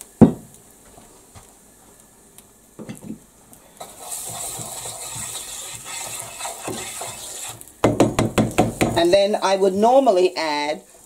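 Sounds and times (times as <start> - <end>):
sizzling in a frying pan: 0.0 - 11.0.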